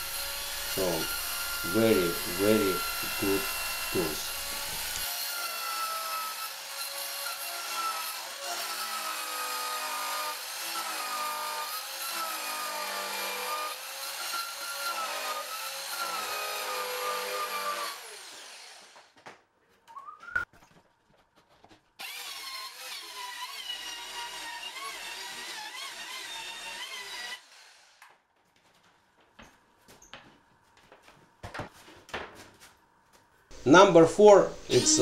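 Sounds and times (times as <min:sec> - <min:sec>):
circular saw cutting wood: 0:00.0 - 0:19.1, 0:22.0 - 0:28.0, 0:33.5 - 0:35.0.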